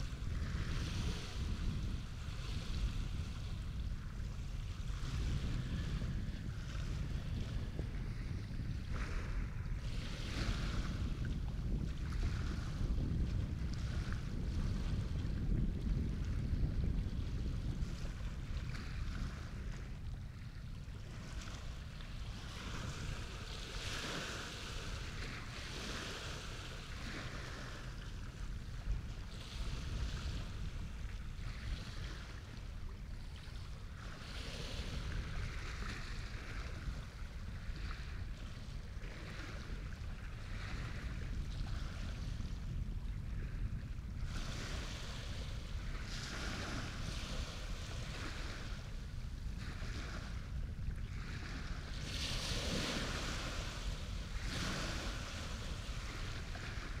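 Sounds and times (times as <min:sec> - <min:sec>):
waves splashing: 0:00.0 - 0:15.9, 0:16.6 - 0:42.4, 0:44.3 - 0:57.0
wind on microphone: 0:00.0 - 0:57.0.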